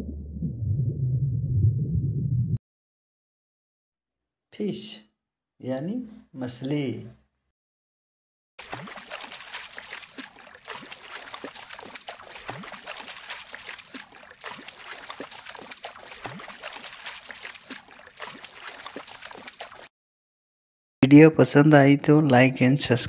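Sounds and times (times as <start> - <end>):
water trickling and bubbling: 8.6 - 19.9.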